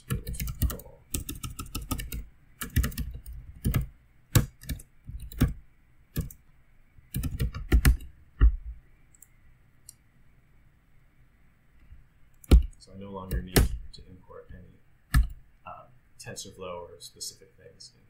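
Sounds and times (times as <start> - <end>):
typing on computer keyboard: 0.0 - 5.6, 6.2 - 6.4, 7.1 - 8.1.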